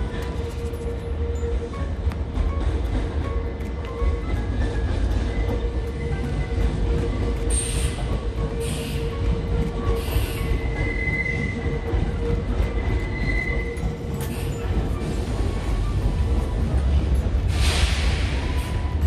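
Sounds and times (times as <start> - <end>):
electric train rumbling: 0.0 - 19.0
wheel squeal: 9.8 - 19.0.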